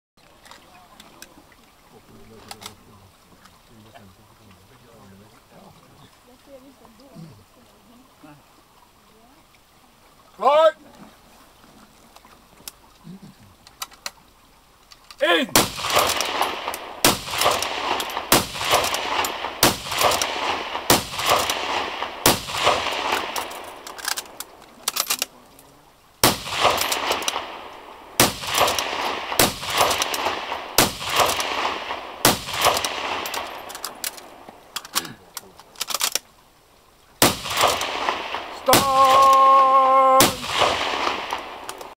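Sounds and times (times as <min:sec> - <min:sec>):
rifle shots with ringing echo: 0:15.6 - 0:24.4, 0:26.2 - 0:34.3, 0:37.2 - 0:39.3, 0:40.2 - 0:41.9.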